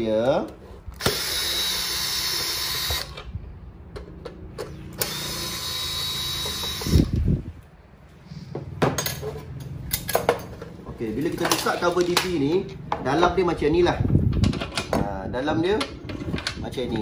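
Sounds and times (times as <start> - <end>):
cordless drill running: 1.0 - 3.2, 5.0 - 7.4.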